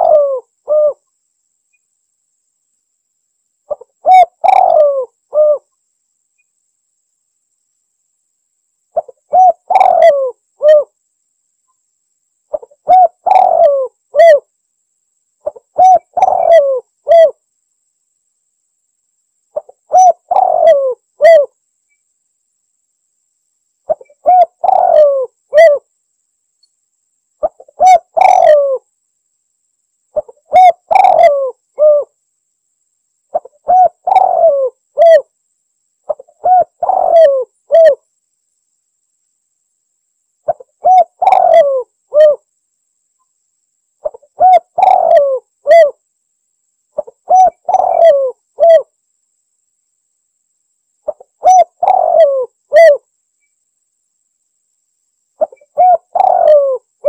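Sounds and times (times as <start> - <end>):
dove cooing: 0.0 - 1.0, 3.7 - 5.7, 9.0 - 10.9, 12.5 - 14.5, 15.4 - 17.4, 19.6 - 21.6, 23.9 - 25.9, 27.4 - 28.9, 30.2 - 32.2, 33.3 - 35.3, 36.1 - 38.0, 40.5 - 42.5, 44.0 - 46.0, 47.0 - 48.9, 51.1 - 53.1, 55.4 - 57.0.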